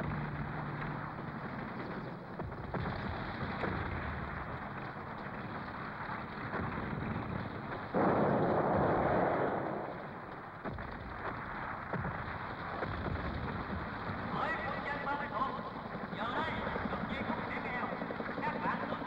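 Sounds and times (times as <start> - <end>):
sharp gunshot cracks: 0.0 - 14.2
rumbling din of combat: 0.0 - 18.5
loud explosion: 2.4 - 14.6.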